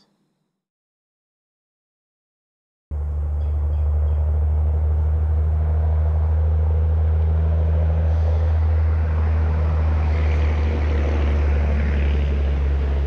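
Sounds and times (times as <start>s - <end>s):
propeller airplane engine droning: 2.9s - 13.0s.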